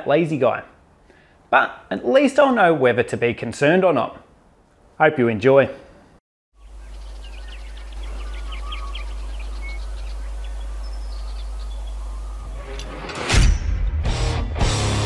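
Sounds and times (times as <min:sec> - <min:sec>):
small birds chirping: 0:06.6 - 0:12.9
guitar rock music: 0:13.9 - 0:15.0.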